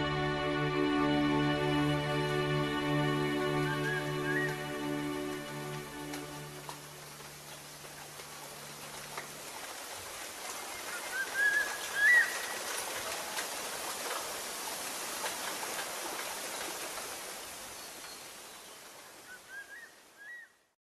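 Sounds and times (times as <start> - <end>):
background music held notes: 0.0 - 9.9.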